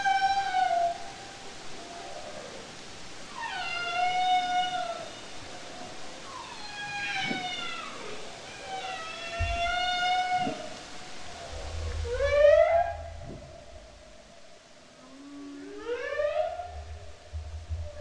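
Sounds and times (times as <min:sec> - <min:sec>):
whale moans underwater: 0:03.3 - 0:18.0
low rumble: 0:11.2 - 0:14.8, 0:16.7 - 0:18.0.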